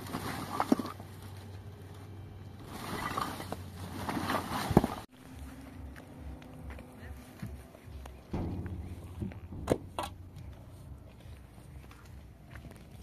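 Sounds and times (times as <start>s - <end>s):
plastic tarp rustling and crinkling: 0.0s - 1.4s, 2.6s - 5.1s
sharp thump: 8.3s - 10.6s.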